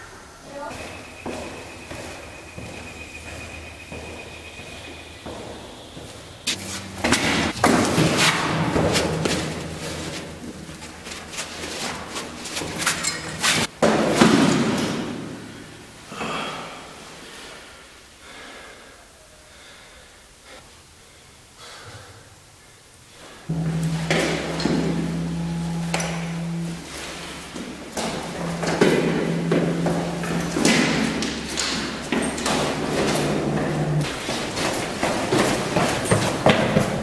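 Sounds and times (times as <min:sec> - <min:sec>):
noisy scraping: 0:00.8 - 0:13.7, 0:23.5 - 0:35.4
heavy thumps and bangs: 0:23.5 - 0:34.1.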